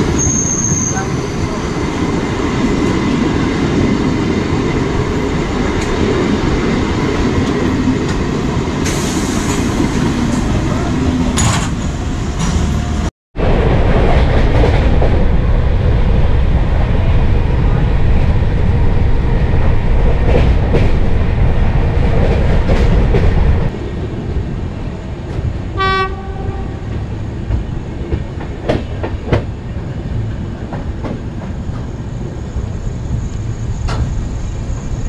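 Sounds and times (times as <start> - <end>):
train wheels rumbling: 0.0 - 35.0
train horn blast: 25.8 - 26.9.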